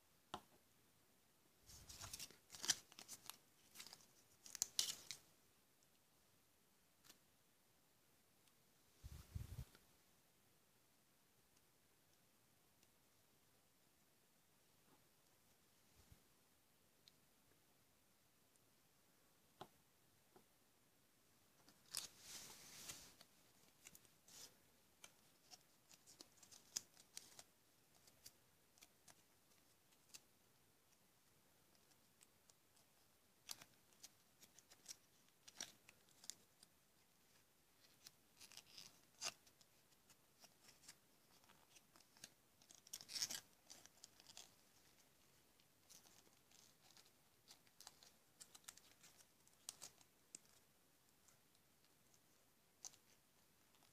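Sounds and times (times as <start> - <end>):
rustling paper or plastic: 1.7 - 5.2.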